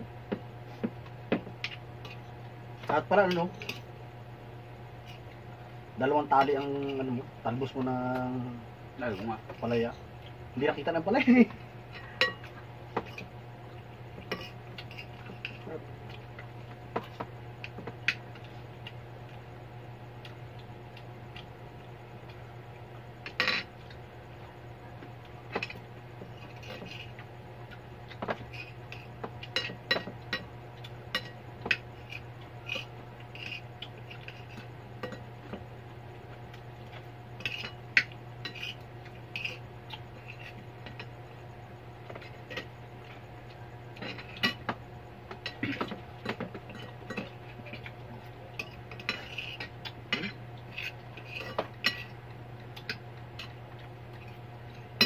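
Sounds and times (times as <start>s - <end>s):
cutlery clinking on plates: 28.2s - 30.5s.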